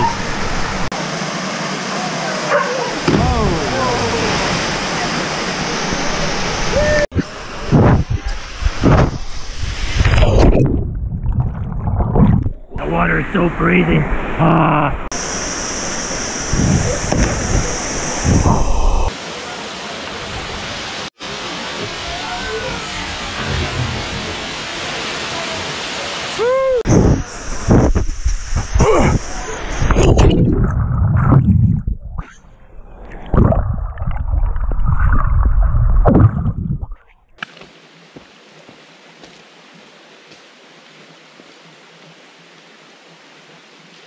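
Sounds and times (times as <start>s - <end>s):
waterfall rushing into pool: 0.0s - 10.4s, 12.8s - 30.2s
low rumbles: 3.0s - 13.3s, 26.9s - 37.4s.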